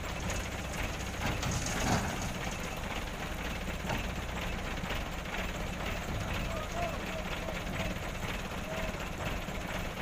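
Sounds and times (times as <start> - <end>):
diesel truck engine idling: 0.0 - 10.0.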